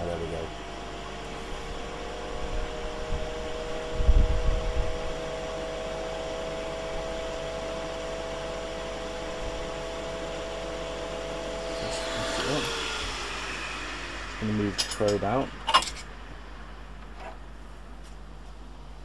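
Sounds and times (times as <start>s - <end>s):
grill fan humming: 0.0s - 19.0s
low rumble: 11.2s - 19.0s.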